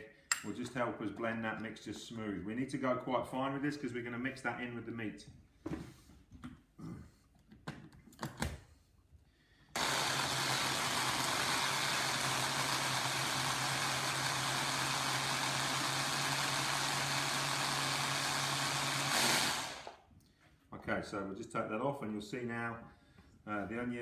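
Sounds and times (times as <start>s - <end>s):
electric blender running: 9.8s - 20.0s.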